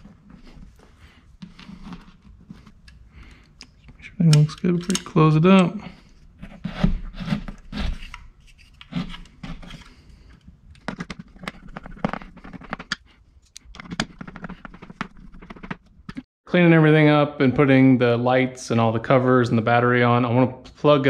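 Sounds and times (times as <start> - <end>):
plastic clicks and scrapes: 6.4 - 16.2.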